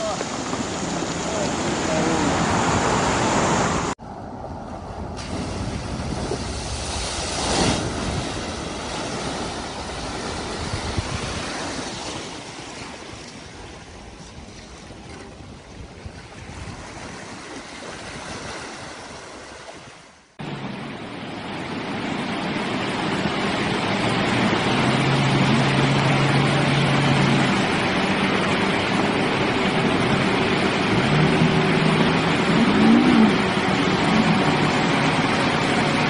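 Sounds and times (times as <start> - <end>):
rush of fast-flowing floodwater: 0.0 - 4.0, 5.2 - 15.2, 16.2 - 36.0
water sloshing around wheels: 0.0 - 20.2
truck engine: 22.5 - 36.0.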